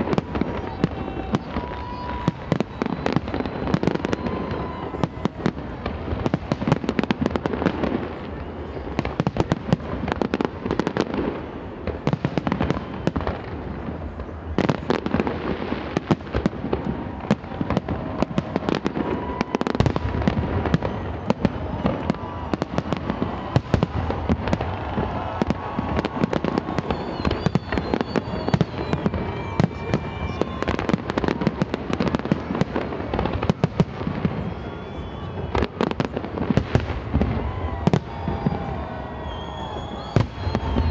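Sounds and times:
fireworks bangs and crackling: 0:00.0 - 0:40.9.

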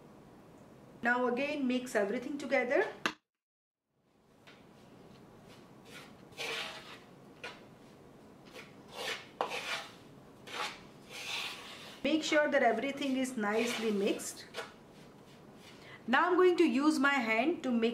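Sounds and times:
fork scraping in bowl: 0:05.8 - 0:07.6, 0:08.5 - 0:12.0, 0:13.0 - 0:14.7.

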